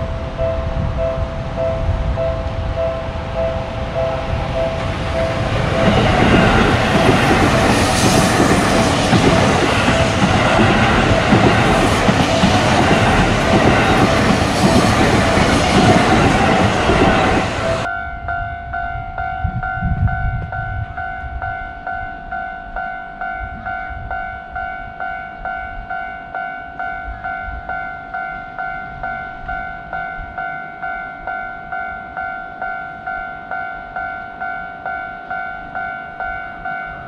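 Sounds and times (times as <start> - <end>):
train rumble and wheel clatter: 0.0 - 34.6
level crossing warning bell: 0.0 - 37.0.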